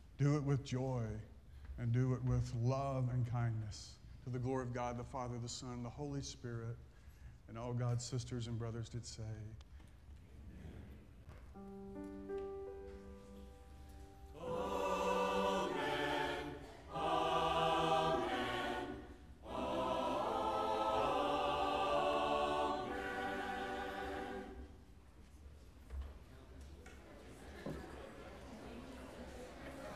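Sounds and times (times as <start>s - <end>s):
church choir singing: 13.3s - 25.0s.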